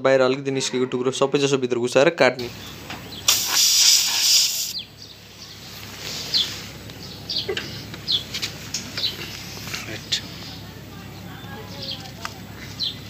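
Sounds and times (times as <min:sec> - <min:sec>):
small birds chirping: 0:02.4 - 0:13.0
hiss: 0:03.3 - 0:04.8.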